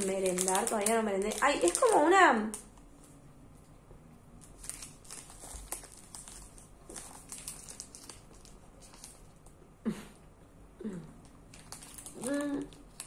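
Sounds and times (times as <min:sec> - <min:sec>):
snack wrapper crinkling: 0:00.0 - 0:03.2, 0:04.4 - 0:09.6, 0:11.2 - 0:13.0.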